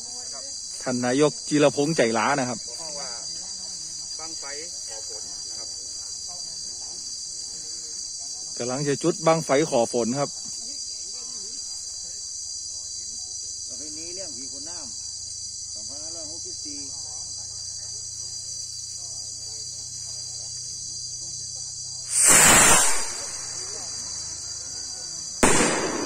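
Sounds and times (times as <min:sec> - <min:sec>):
insects buzzing: 0:00.0 - 0:26.0
rocket firing off: 0:22.1 - 0:23.8, 0:25.4 - 0:26.0.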